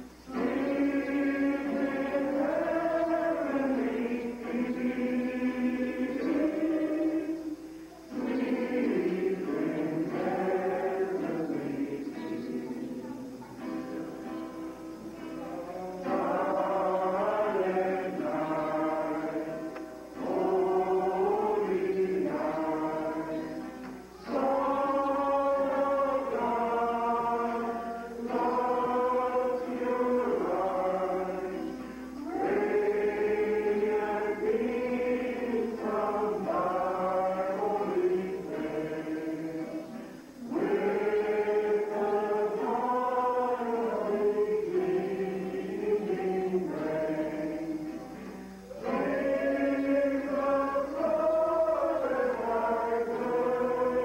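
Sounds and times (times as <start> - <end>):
choir singing a carol: 0.0 - 54.0.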